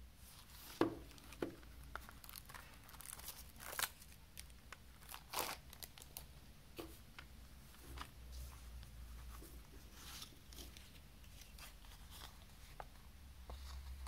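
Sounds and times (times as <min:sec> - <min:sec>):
cellophane crinkling and ripping: 0:00.4 - 0:06.3.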